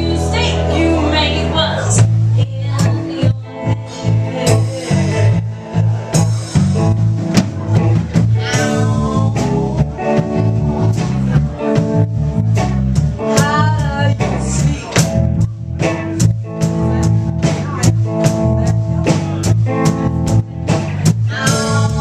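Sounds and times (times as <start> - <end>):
woman singing: 0.0 - 5.4, 8.4 - 10.2, 13.2 - 15.0, 21.2 - 22.0
drum kit beat: 0.0 - 22.0
electric bass: 0.0 - 22.0
electric guitar: 0.0 - 22.0.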